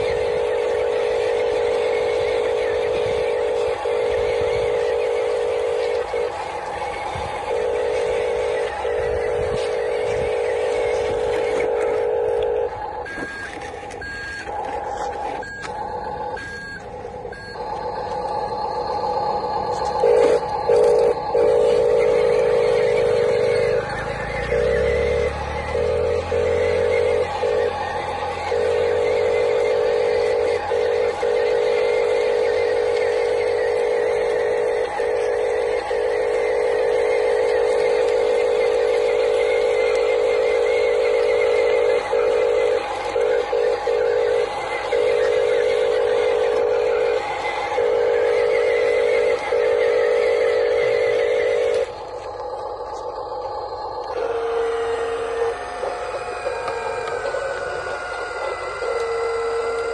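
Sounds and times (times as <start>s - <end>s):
toy truck electric whine: 0.0s - 59.9s
short electronic beeps: 7.6s - 47.2s.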